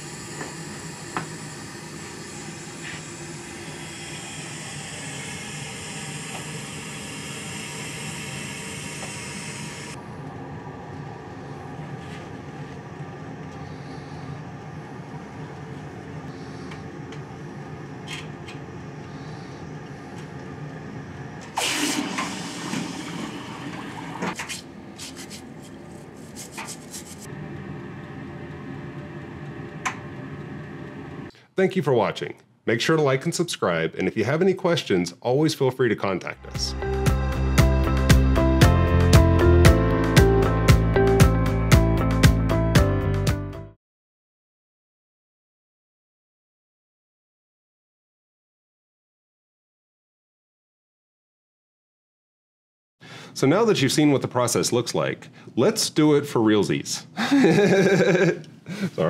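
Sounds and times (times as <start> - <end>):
hiss of drawn air: 0.0 - 10.0
vacuum pump humming: 0.0 - 26.2, 27.2 - 31.3.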